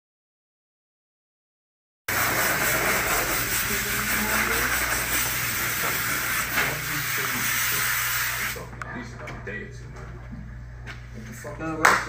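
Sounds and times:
rushing air hiss: 2.1 - 8.6.

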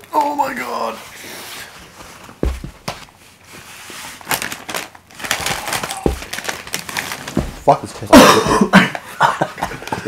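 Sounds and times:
dull thumps: 2.4 - 3.1, 6.0 - 7.8
foil packet crinkling: 4.2 - 7.8.

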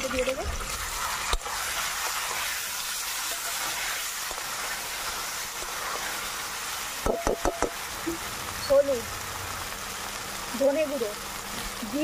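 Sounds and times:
food sizzling in hot oil: 0.0 - 12.0
metal spatula knock: 7.0 - 7.8.

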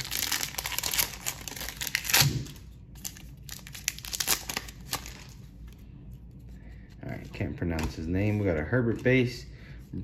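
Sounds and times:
foil wrapper crinkling and tearing: 0.0 - 5.4.

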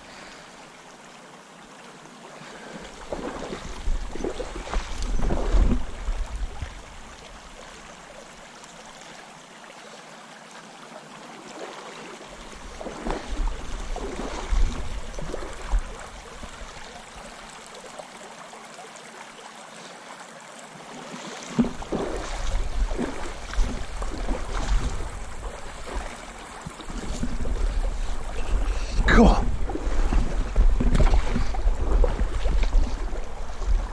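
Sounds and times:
river water running over gravel: 0.0 - 33.9
wind buffeting microphone: 3.5 - 6.9, 12.6 - 16.8, 21.7 - 33.9.

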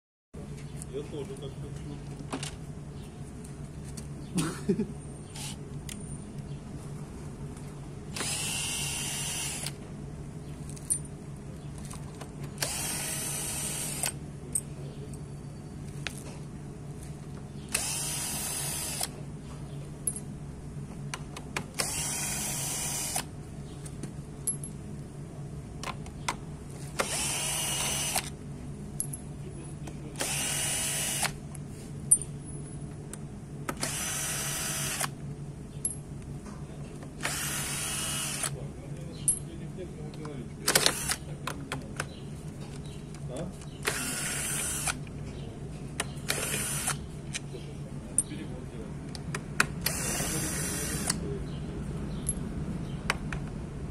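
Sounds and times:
cordless drill whirring: 5.4 - 5.6, 8.1 - 9.8, 12.6 - 14.2, 17.7 - 19.2, 21.8 - 23.3, 27.0 - 28.3, 30.2 - 31.4, 33.8 - 35.1, 37.2 - 38.5, 40.8 - 41.2, 43.8 - 45.0, 46.2 - 47.0, 49.8 - 51.2.

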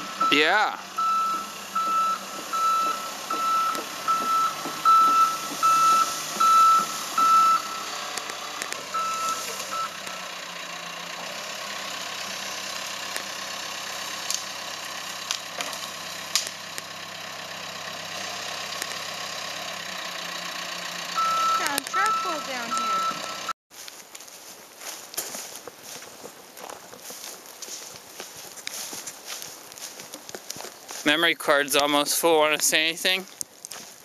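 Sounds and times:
excavator travel alarm beeping: 0.0 - 8.1, 8.9 - 10.3, 21.1 - 23.6
diesel engine running: 0.0 - 23.6, 24.2 - 34.0.

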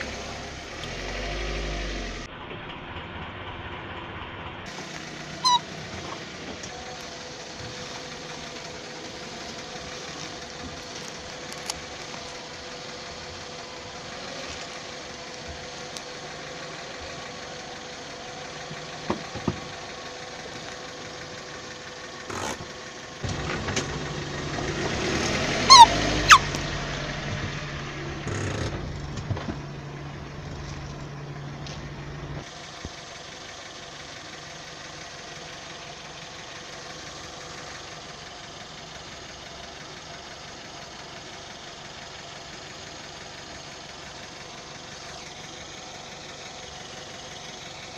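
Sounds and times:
car engine idling: 0.0 - 47.9
high gliding squeaks: 5.4 - 5.9, 25.6 - 26.6.

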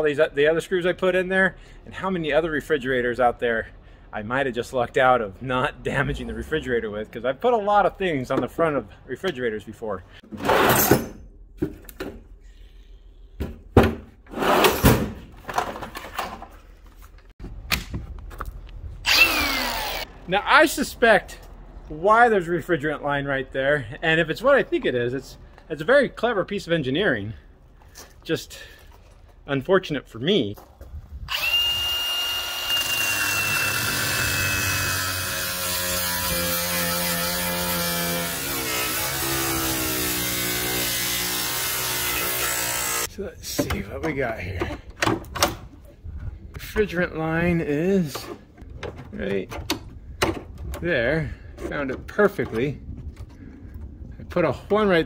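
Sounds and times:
angle grinder cutting steel: 19.0 - 20.1, 31.3 - 43.1.

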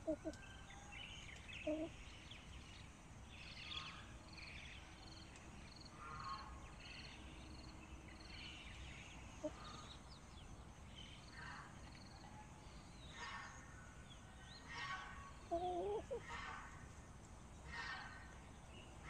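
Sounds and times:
chickens calling: 0.0 - 0.7, 1.4 - 2.0, 14.7 - 16.9.

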